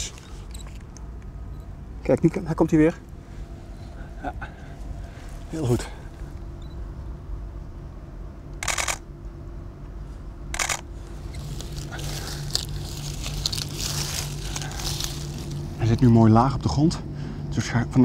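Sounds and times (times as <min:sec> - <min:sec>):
steady low hum: 0:00.0 - 0:18.0
camera shutter bursts: 0:08.6 - 0:09.0, 0:10.5 - 0:10.9.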